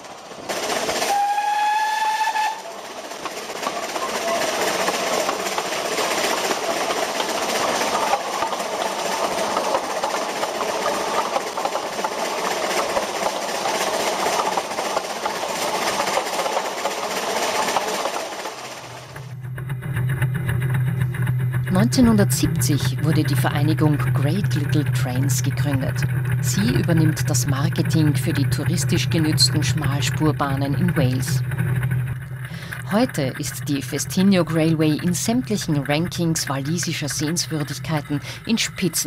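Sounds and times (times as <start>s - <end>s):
steam train running: 0.0s - 39.0s
steam locomotive whistle: 1.0s - 2.8s.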